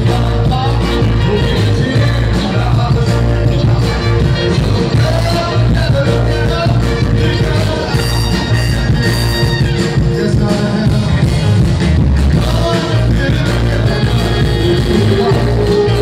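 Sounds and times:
vocal group singing: 0:00.0 - 0:09.0, 0:12.2 - 0:16.0
soul band playing: 0:00.0 - 0:16.0.

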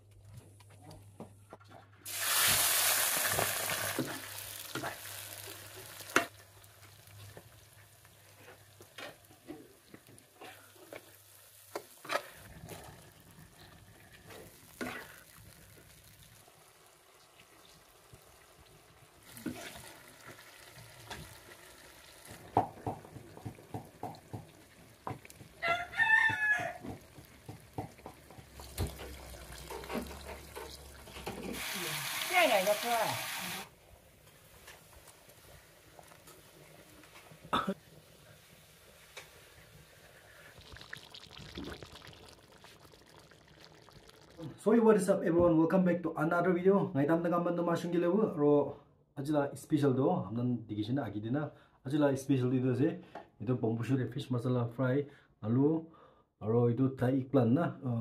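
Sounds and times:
food sizzling in hot oil: 0:02.1 - 0:44.6
utensils knocking in pan: 0:22.3 - 0:31.6
rooster crowing: 0:25.6 - 0:27.0.

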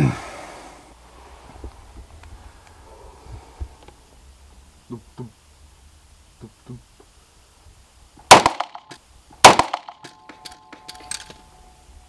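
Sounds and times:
pistol shots: 0:08.3 - 0:11.3
faint ringing: 0:09.9 - 0:12.0.

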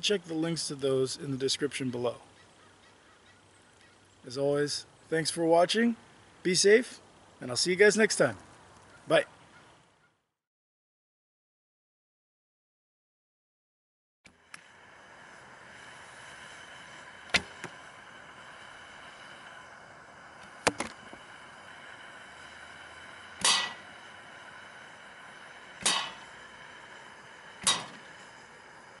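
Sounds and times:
steady hiss: 0:00.0 - 0:09.9, 0:14.3 - 0:29.0
arrows striking a target: 0:20.6 - 0:21.0, 0:23.4 - 0:23.8, 0:25.8 - 0:26.3, 0:27.6 - 0:28.1.

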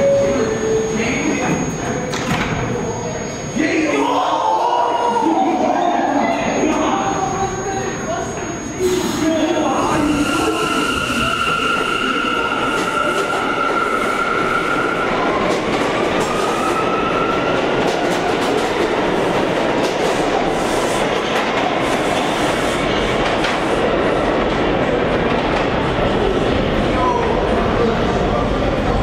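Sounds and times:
train wheels rumbling on rail: 0:09.9 - 0:29.0.

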